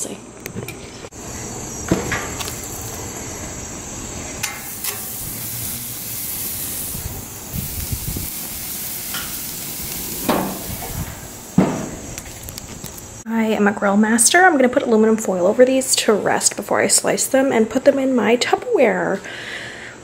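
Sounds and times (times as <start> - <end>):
chicken sizzling on a grill: 1.2 - 13.0.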